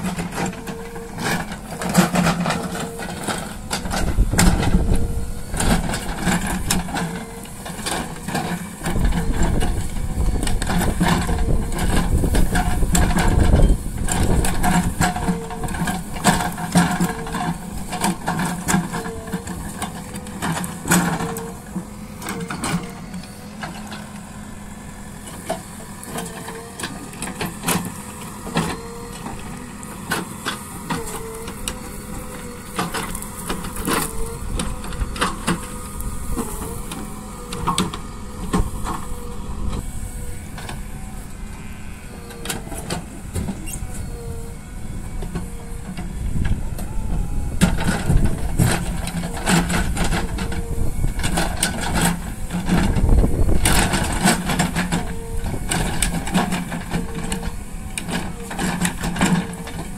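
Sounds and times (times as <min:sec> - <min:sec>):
diesel engine running under load: 0:00.0 - 0:59.9.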